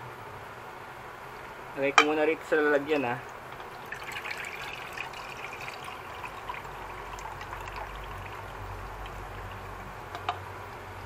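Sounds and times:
brine pouring into bowl: 0:03.2 - 0:10.1.

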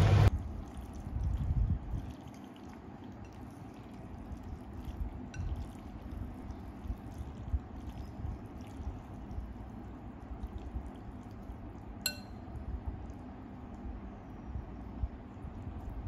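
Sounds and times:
noodles being stirred: 0:00.3 - 0:13.9
metal spoon clinking on ceramic bowl: 0:12.1 - 0:12.5.

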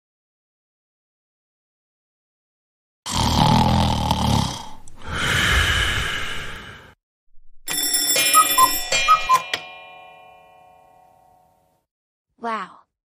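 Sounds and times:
alarm bell ringing: 0:07.6 - 0:11.7
two-note chime: 0:07.7 - 0:11.6.

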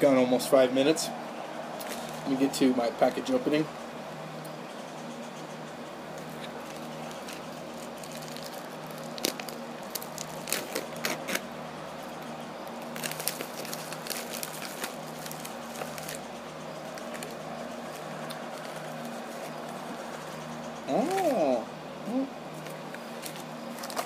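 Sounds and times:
steady low hum: 0:00.0 - 0:24.0
tobacco pipe popping and crackling: 0:06.1 - 0:11.4.

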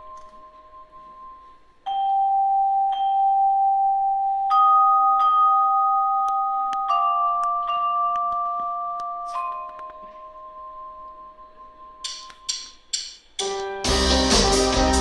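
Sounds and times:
bell-like notes ringing: 0:00.0 - 0:15.0.

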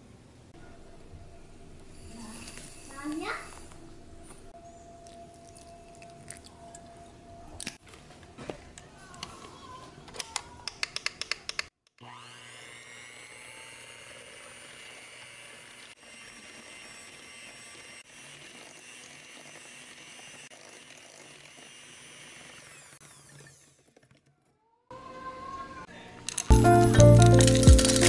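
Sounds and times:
electric hand mixer beating: 0:12.0 - 0:24.0, 0:26.5 - 0:28.0.

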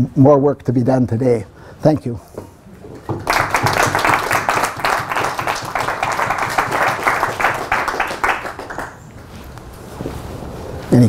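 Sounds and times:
audience applauding: 0:02.9 - 0:09.1.

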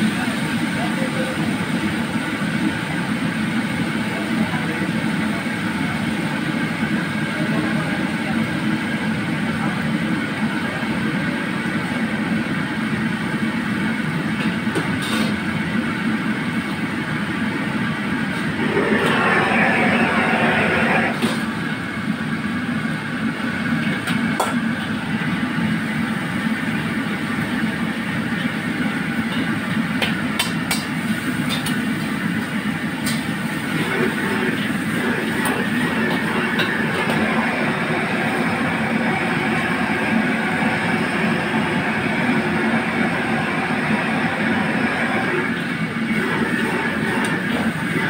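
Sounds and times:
wok burner rushing: 0:13.5 - 0:22.4, 0:23.2 - 0:48.0.

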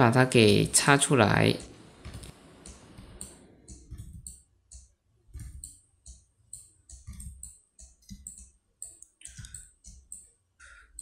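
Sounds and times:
mouse and keyboard clicking: 0:02.0 - 0:10.3.

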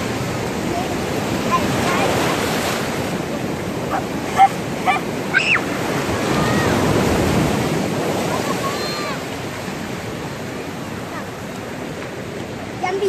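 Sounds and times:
waves washing on shore: 0:00.0 - 0:13.0
children's high-pitched cries: 0:03.9 - 0:05.7, 0:08.4 - 0:09.2.

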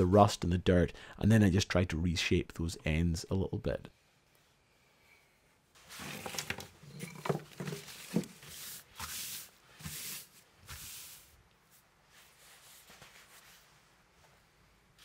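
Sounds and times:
paper rustling and crinkling: 0:05.8 - 0:11.1.

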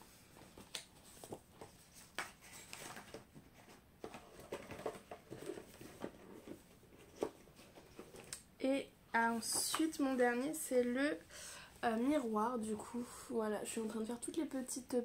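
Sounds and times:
books and paper rustling: 0:00.0 - 0:08.4.

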